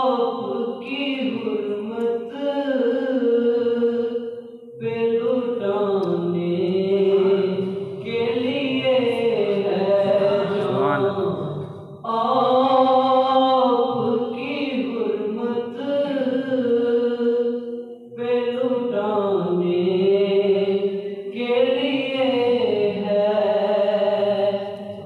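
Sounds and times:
man reciting melodically: 6.9 - 11.6.

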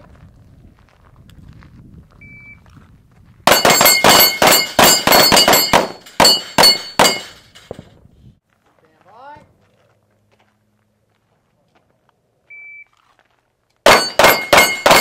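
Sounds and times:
electronic beep: 2.2 - 2.6
steel targets ringing: 3.5 - 7.8, 13.9 - 15.0
pistol shots: 13.9 - 15.0.

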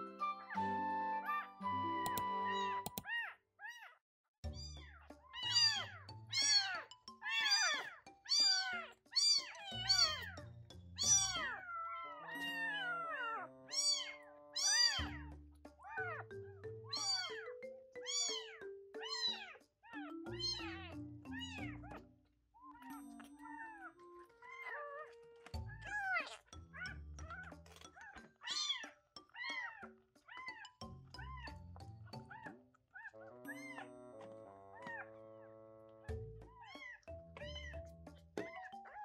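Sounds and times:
background music: 0.0 - 3.0, 4.5 - 22.1, 22.7 - 39.0
kitten mewing: 11.0 - 15.2, 16.9 - 17.4.

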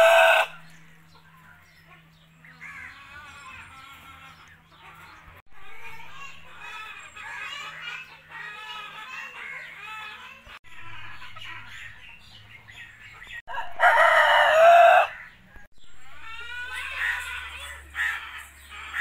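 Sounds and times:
rooster crowing: 0.0 - 0.6, 13.5 - 15.2
chickens calling softly: 0.0 - 19.0.

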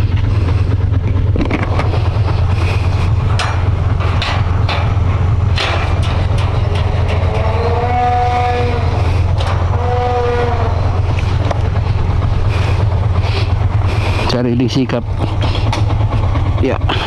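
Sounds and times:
knocks and rattles: 0.0 - 14.2
motorcycle engine running: 0.0 - 17.0
drawn-out rising and falling calls: 6.5 - 14.2.

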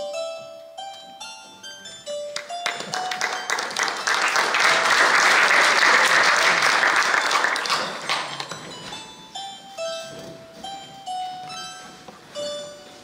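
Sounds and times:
audience applauding: 2.4 - 8.5.

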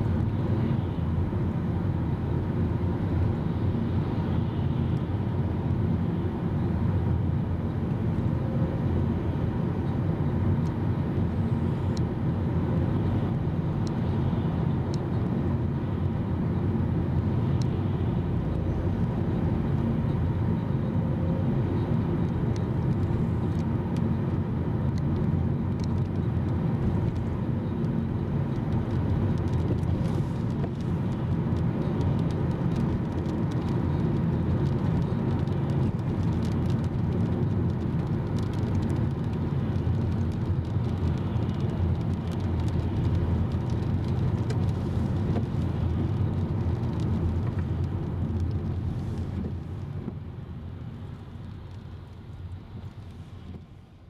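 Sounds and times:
car road and engine noise: 0.0 - 54.0.

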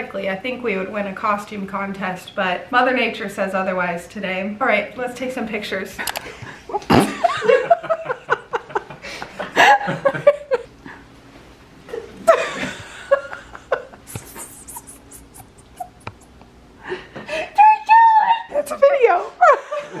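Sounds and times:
adults laughing: 6.2 - 10.7, 12.2 - 16.4, 19.4 - 20.0
playful vocal noises: 14.1 - 16.4.

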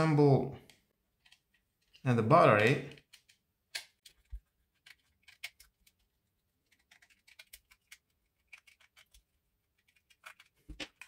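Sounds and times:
plastic parts clicking: 0.6 - 11.0.

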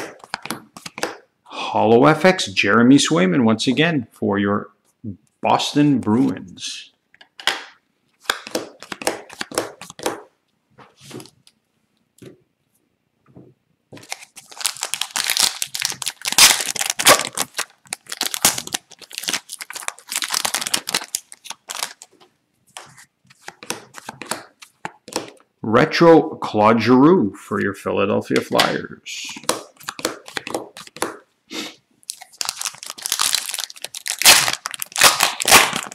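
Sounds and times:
trading cards shuffling: 0.0 - 1.2, 7.4 - 11.5, 13.9 - 25.4, 28.4 - 31.2, 32.1 - 35.9
card pack wrapper tearing: 14.0 - 22.1, 32.1 - 35.9.

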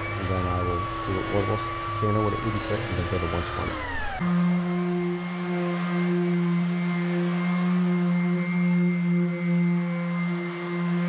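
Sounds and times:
orbital sander humming: 0.0 - 11.0
sandpaper hissing on wood: 6.8 - 11.0.

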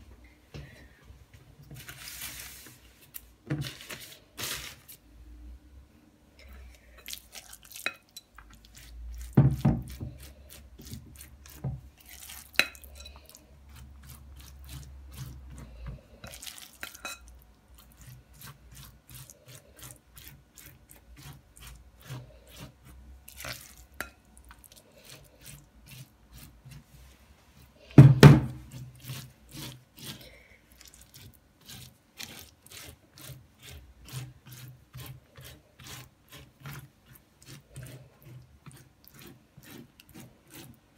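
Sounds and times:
spatula dabbing and rubbing strokes: 1.4 - 5.1, 6.5 - 40.9.

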